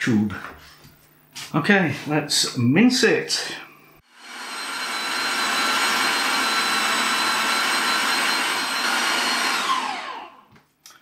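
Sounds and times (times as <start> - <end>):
electric meat mincer motor: 4.1 - 10.5.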